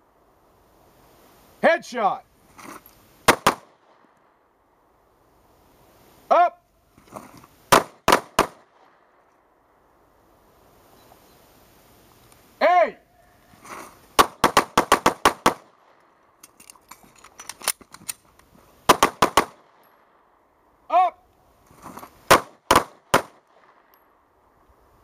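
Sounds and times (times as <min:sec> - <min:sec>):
pistol shots: 0:03.3 - 0:03.8, 0:07.7 - 0:08.7, 0:14.2 - 0:15.8, 0:18.9 - 0:19.7, 0:22.3 - 0:23.8.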